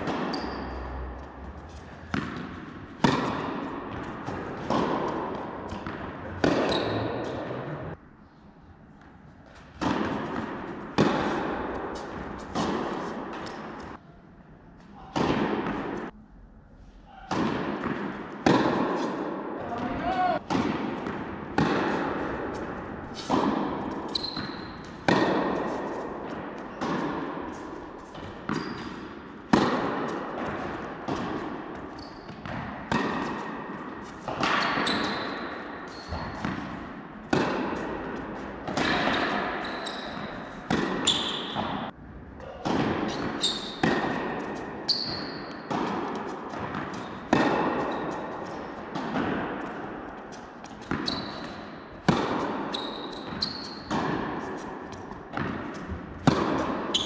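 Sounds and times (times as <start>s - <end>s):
tennis racket strikes: 0.0s - 7.6s, 9.6s - 14.0s, 15.0s - 16.2s, 17.1s - 19.6s, 20.4s - 42.0s, 42.6s - 57.0s
tennis ball bouncing on court: 0.0s - 7.8s, 9.6s - 14.0s, 15.0s - 16.1s, 17.2s - 42.0s, 42.6s - 57.0s.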